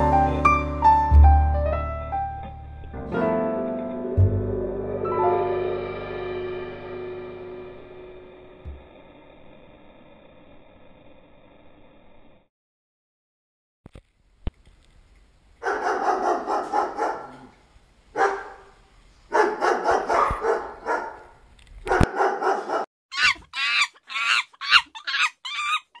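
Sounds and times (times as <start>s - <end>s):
dog drawn-out vocalizing: 21.9s - 26.0s
dog high-pitched whines: 23.1s - 26.0s.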